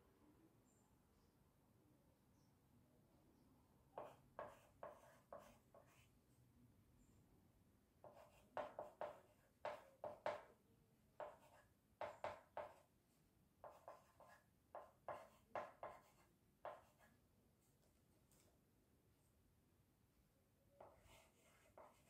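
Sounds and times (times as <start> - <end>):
chalk scratching on blackboard: 4.0 - 6.1, 8.0 - 10.5, 11.2 - 12.9, 13.6 - 17.1, 20.8 - 22.0.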